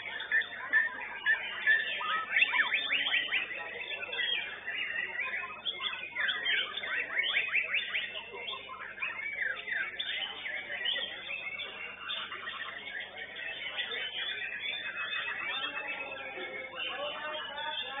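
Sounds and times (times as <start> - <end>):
songbirds singing: 0.0 - 18.0.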